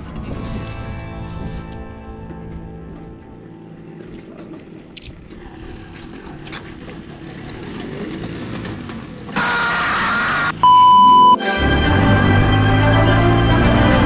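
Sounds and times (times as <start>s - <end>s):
motorbike engines on gravel: 1.8s - 10.6s
test-pattern beep: 9.8s - 11.6s.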